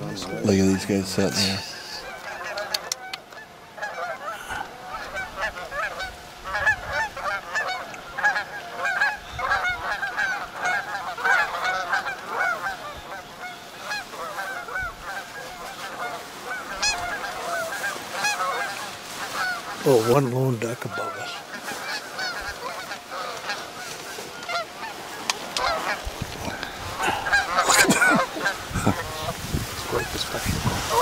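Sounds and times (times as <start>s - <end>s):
geese honking: 0.0s - 31.0s.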